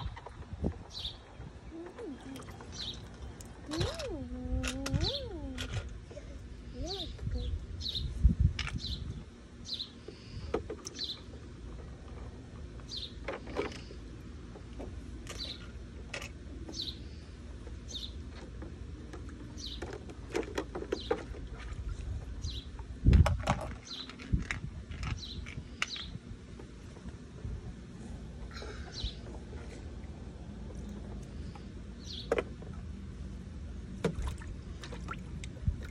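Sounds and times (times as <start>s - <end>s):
bird chirping: 2.4s - 3.8s
plastic toys clattering: 23.2s - 26.0s.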